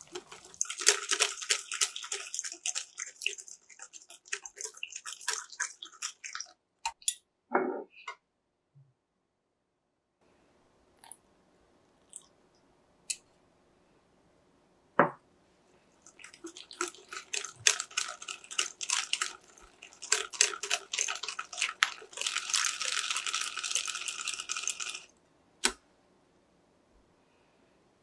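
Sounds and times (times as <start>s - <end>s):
whisk scraping glass bowl: 0.0s - 6.5s, 16.0s - 25.1s.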